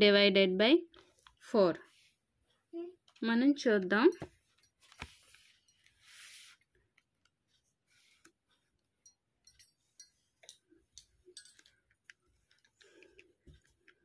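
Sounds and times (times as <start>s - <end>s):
soft rustle on paper: 0.9s - 3.2s, 4.2s - 8.9s.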